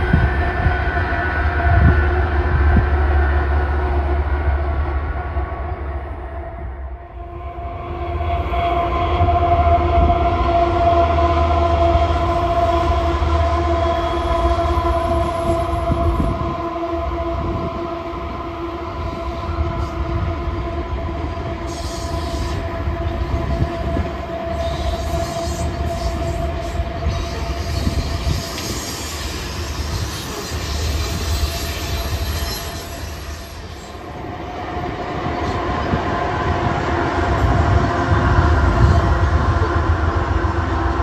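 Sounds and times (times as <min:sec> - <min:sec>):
diesel locomotive droning rumble: 0:00.0 - 0:41.0
flange squeal: 0:07.2 - 0:34.2
train wheel clatter: 0:23.3 - 0:34.0.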